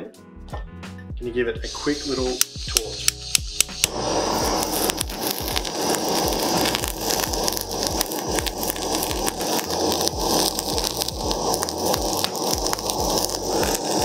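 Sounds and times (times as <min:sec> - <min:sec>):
blowtorch flame hissing: 0:01.7 - 0:14.0.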